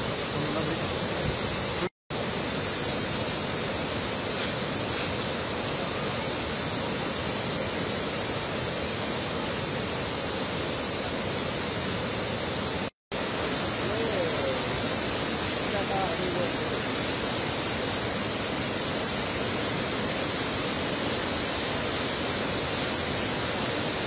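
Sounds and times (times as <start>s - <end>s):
river rushing over rock falls: 0.0s - 24.0s.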